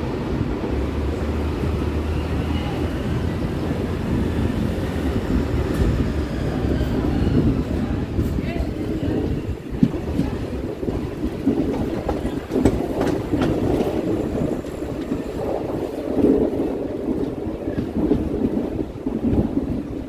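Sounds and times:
train wheels rumbling on rails: 0:00.0 - 0:20.0
wind: 0:00.0 - 0:20.0.

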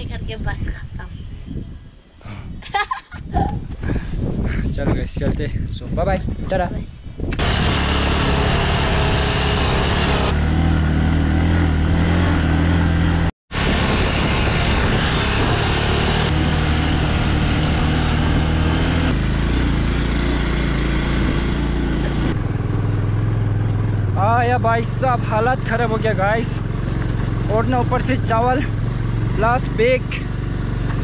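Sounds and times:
wind and road noise: 0:00.0 - 0:31.0
motorcycle engine running: 0:07.4 - 0:31.0.

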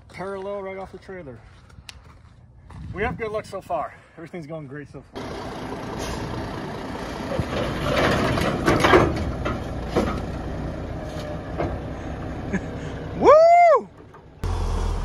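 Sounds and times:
truck engine running: 0:05.2 - 0:13.2, 0:14.0 - 0:15.0
heavy metal clanks and knocks: 0:07.4 - 0:10.3.

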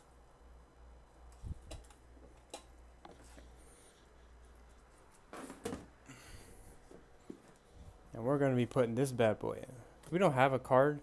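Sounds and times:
cables handled with light knocks: 0:01.3 - 0:03.6, 0:06.8 - 0:08.0.

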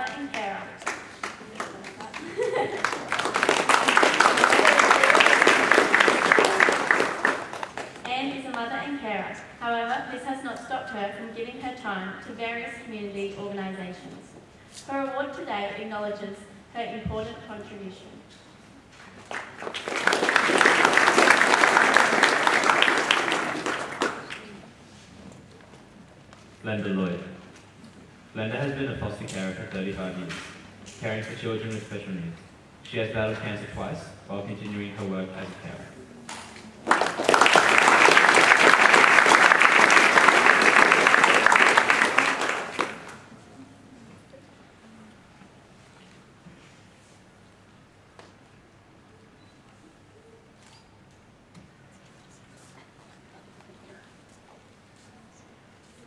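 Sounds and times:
audience applauding: 0:00.8 - 0:08.0, 0:19.2 - 0:24.6, 0:36.8 - 0:43.3.

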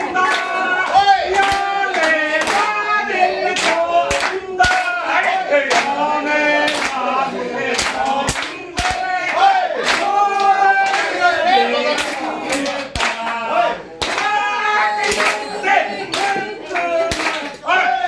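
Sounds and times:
voices singing long notes: 0:00.0 - 0:18.0
hand claps: 0:00.2 - 0:02.8, 0:03.5 - 0:06.0, 0:06.6 - 0:07.0, 0:07.7 - 0:11.2, 0:12.0 - 0:13.4, 0:14.0 - 0:14.4, 0:15.0 - 0:17.6.

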